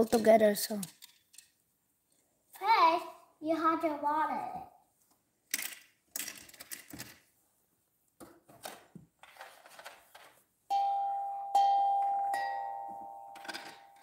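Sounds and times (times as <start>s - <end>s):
plastic toy pieces clicking: 0.0s - 1.6s, 5.5s - 7.2s
electronic doorbell chime: 10.7s - 14.0s.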